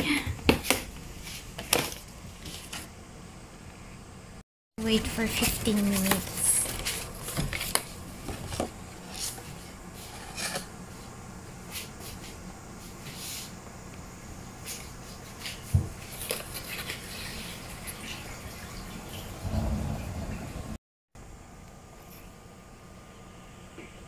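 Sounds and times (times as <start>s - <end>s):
paper crackling and rustling: 5.2s - 9.7s, 15.3s - 17.6s.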